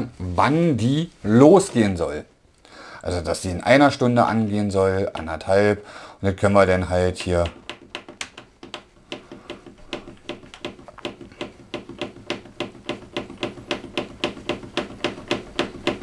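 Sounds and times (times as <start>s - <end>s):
washing machine panel clicking: 7.2s - 16.0s.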